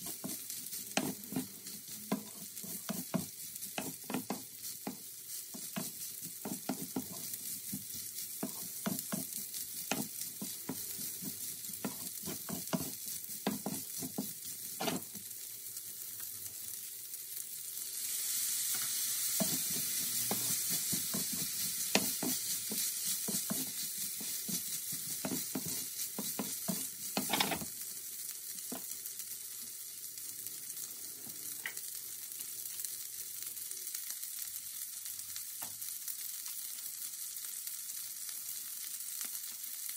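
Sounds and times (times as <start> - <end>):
wooden spatula scraping a pan: 0.0 - 15.2, 19.3 - 27.7
rice sizzling in a pan: 0.0 - 39.9.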